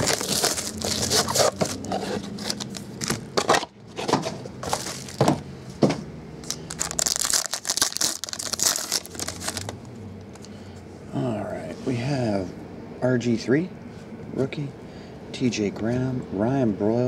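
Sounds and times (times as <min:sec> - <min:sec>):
wrapper crinkling and tearing: 0:00.0 - 0:03.2, 0:04.6 - 0:05.2, 0:06.4 - 0:09.9.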